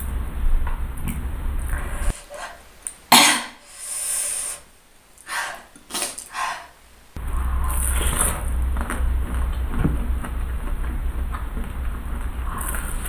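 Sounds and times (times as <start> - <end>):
woman coughing: 3.1 - 3.6
woman eating: 5.2 - 13.0.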